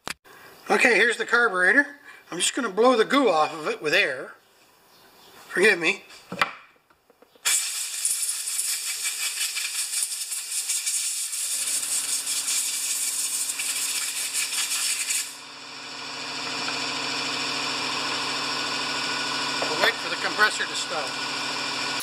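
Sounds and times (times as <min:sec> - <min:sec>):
compressed air hissing: 0:07.5 - 0:15.4
air compressor motor humming: 0:09.8 - 0:22.0.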